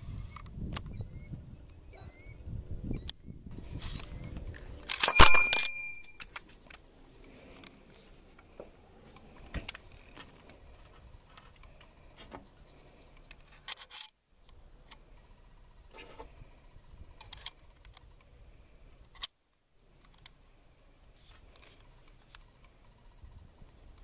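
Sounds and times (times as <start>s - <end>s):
rifle mechanism clicks: 4.8s - 6.8s
metallic scrapes and rubbing: 12.6s - 14.2s, 15.9s - 16.4s.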